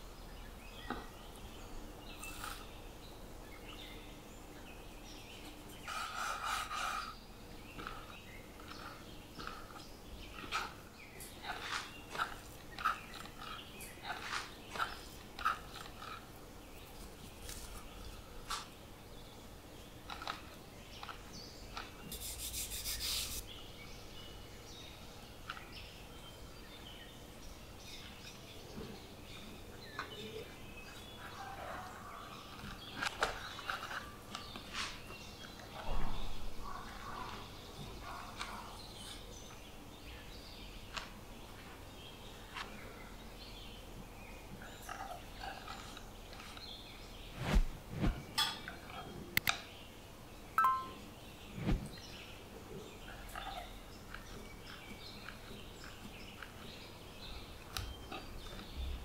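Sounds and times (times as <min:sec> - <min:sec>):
rasping rub of dough: 0:05.8 - 0:07.2, 0:22.1 - 0:23.5
faint bird chirps: 0:50.6 - 0:52.2.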